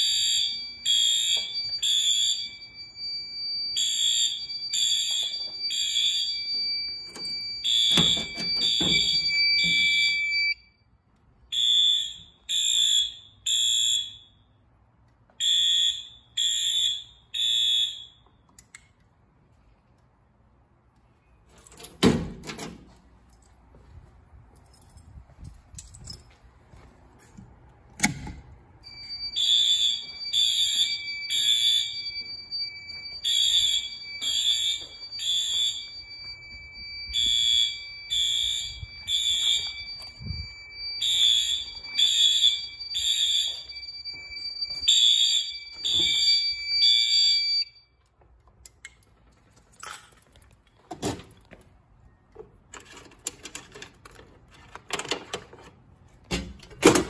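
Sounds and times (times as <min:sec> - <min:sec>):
fire alarm horn blasts: 0:00.0 - 0:10.9, 0:11.5 - 0:14.7, 0:15.4 - 0:18.4, 0:28.8 - 0:48.0
steady high alarm tone: 0:00.0 - 0:10.9, 0:11.5 - 0:14.5, 0:15.4 - 0:18.3, 0:28.8 - 0:48.0.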